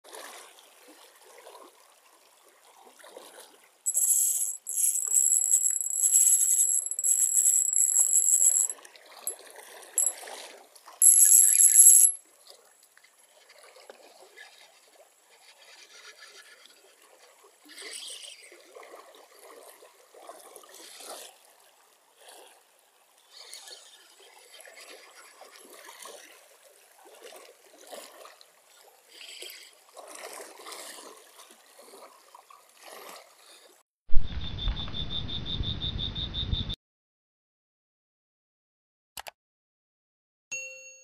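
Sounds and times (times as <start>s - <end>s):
fishing reel drag buzzing: 3.9s - 8.7s, 11.0s - 12.2s.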